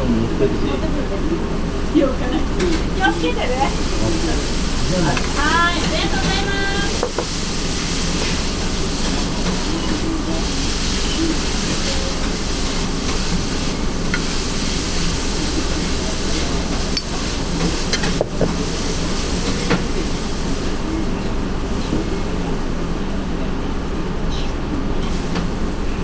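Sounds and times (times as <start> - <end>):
kitchen ventilation hiss: 0.0 - 26.0
faint voices: 8.4 - 13.9, 14.6 - 24.8.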